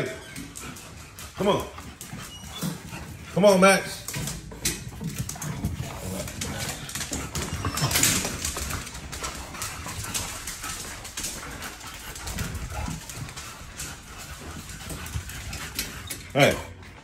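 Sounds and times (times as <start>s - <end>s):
dog noises: 0.0s - 17.0s.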